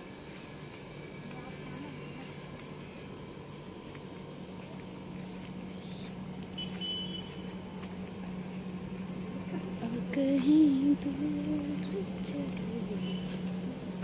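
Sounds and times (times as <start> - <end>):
faint footsteps: 0.0 - 14.0
steady low hum: 0.0 - 14.0.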